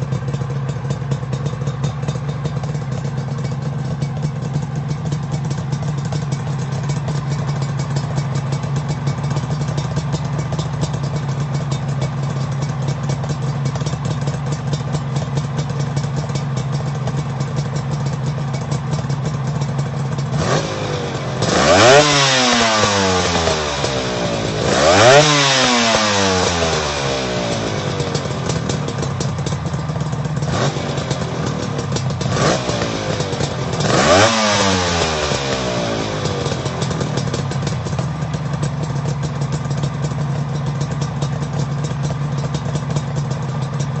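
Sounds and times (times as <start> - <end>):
motorcycle engine idling and revving: 0.0 - 44.0.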